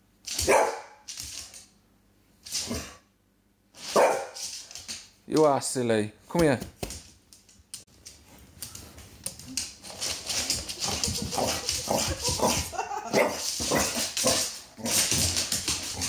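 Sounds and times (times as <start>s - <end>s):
dog barking and whining: 0.4s - 1.0s, 3.9s - 4.4s.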